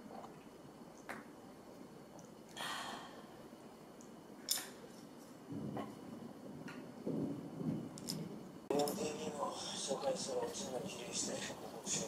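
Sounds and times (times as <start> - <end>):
person sighing: 2.6 - 3.2.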